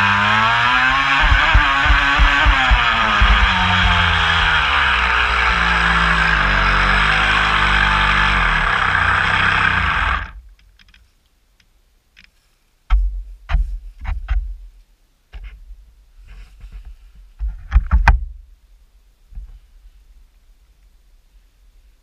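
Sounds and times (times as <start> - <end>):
model boat motor running: 0.0 - 10.4
sharp knocks: 0.6 - 8.4.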